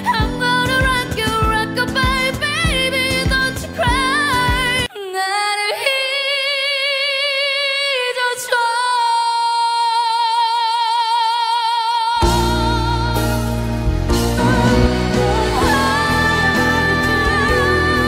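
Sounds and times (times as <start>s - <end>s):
woman singing with vibrato: 0.0s - 18.0s
band with heavy bass: 12.2s - 18.0s.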